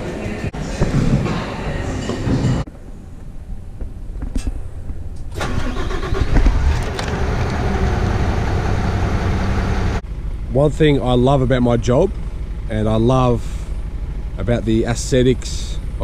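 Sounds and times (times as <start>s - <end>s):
diesel engine starting and idling: 5.0s - 16.0s.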